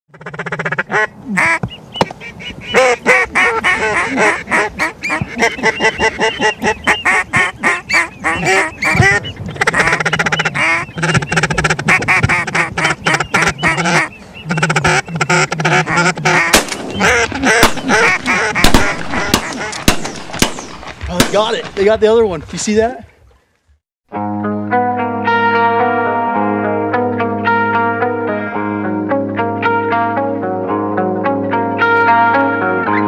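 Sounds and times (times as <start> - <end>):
geese honking: 0.1 - 21.6
ducks quacking: 0.1 - 22.0.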